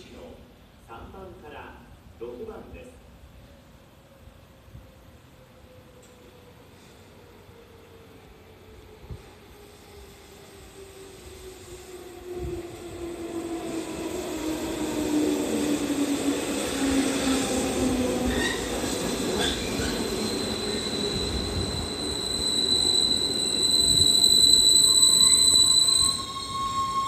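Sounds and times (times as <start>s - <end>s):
high brake squeal: 18.2s - 27.0s
train whine falling in pitch: 19.4s - 27.0s.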